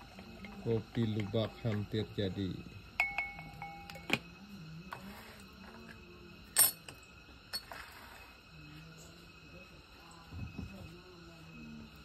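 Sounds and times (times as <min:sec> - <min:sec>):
clinks on glass coffee maker: 0:03.0 - 0:04.2.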